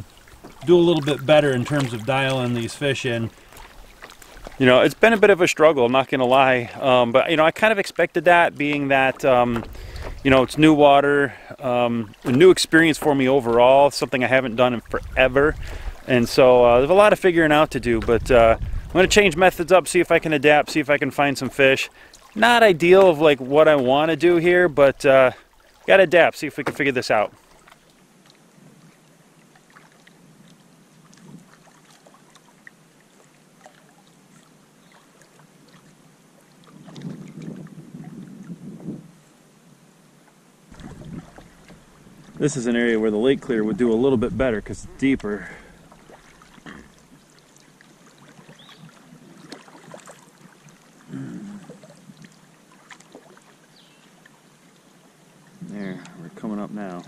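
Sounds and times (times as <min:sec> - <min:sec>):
small ticks and splashes: 0:00.0 - 0:10.7, 0:11.9 - 0:18.2, 0:19.7 - 0:38.6, 0:40.3 - 0:42.6, 0:45.1 - 0:56.2
water lapping against canoe hull: 0:00.0 - 0:39.3, 0:40.1 - 0:57.0
light knocks on canoe: 0:08.7 - 0:10.3.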